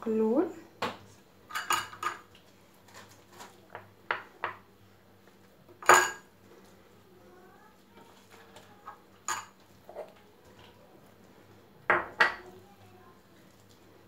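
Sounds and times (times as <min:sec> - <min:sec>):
spoon clinking on ceramic bowls: 0:01.5 - 0:02.3, 0:05.8 - 0:06.3, 0:09.2 - 0:10.1.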